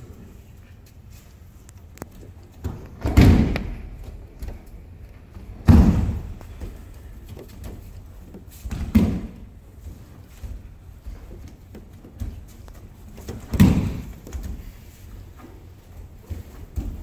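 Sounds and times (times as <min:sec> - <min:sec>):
light footfalls and taps: 0:01.6 - 0:17.0
heavy thuds on mats: 0:02.6 - 0:04.6, 0:05.4 - 0:06.9, 0:08.6 - 0:09.5, 0:13.2 - 0:14.7.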